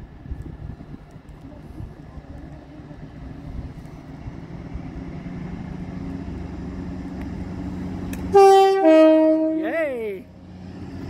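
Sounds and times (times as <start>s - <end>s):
diesel train engine drone: 0.0s - 11.0s.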